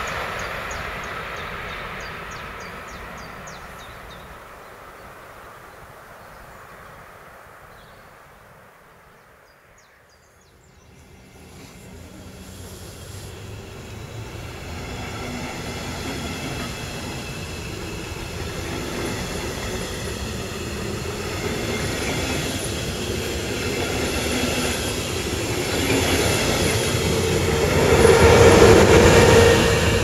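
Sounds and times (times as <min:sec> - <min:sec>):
electric locomotive whine: 0:00.0 - 0:04.4, 0:10.6 - 0:30.0
train wheels rolling on rails: 0:10.8 - 0:30.0.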